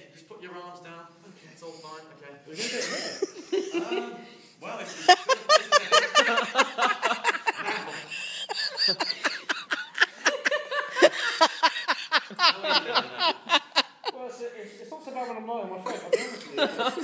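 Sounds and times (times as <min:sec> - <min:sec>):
people laughing: 0:02.6 - 0:14.2, 0:15.9 - 0:17.0.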